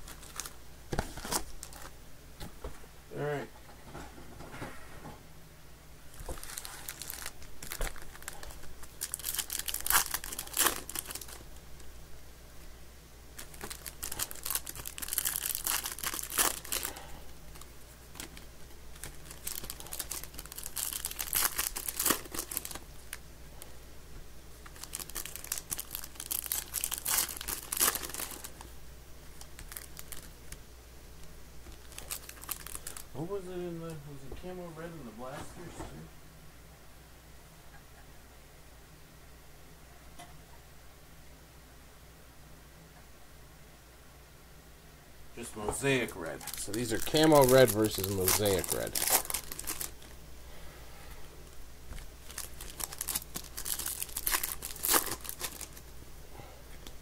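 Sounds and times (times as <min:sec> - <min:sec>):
foil wrappers tearing and crinkling: 0:00.0 - 0:01.9, 0:06.1 - 0:11.5, 0:13.4 - 0:23.2, 0:24.6 - 0:30.6, 0:31.7 - 0:33.1, 0:45.8 - 0:50.1, 0:51.9 - 0:55.9
faint low hum: 0:00.0 - 0:57.0.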